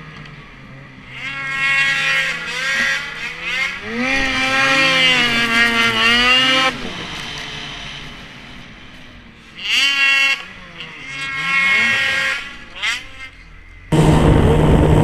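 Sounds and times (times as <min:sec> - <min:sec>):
snowmobile engine revving: 0:00.0 - 0:15.0.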